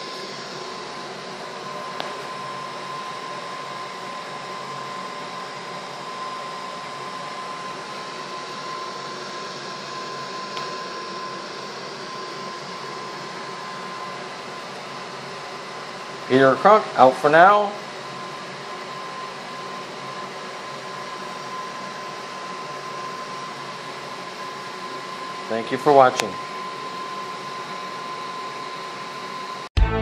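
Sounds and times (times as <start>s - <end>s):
gas burner hissing: 0.0s - 29.0s.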